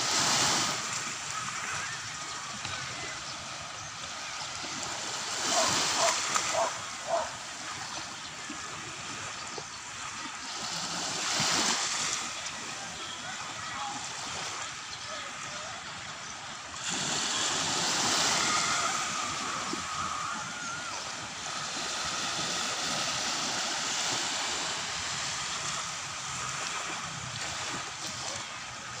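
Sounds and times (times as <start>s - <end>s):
sea waves breaking on shore: 0.0s - 29.0s.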